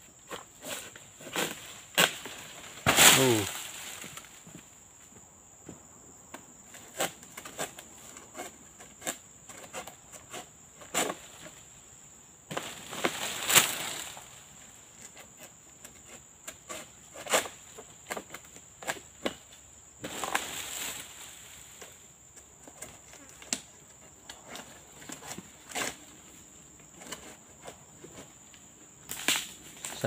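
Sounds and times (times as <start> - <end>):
insect drone: 0.0 - 30.0
pole chopping into palm fronds: 0.6 - 4.4, 12.5 - 14.3, 20.0 - 22.0, 29.1 - 30.0
cut fronds crashing through leaves: 1.2 - 4.4, 12.5 - 14.6, 20.0 - 21.6.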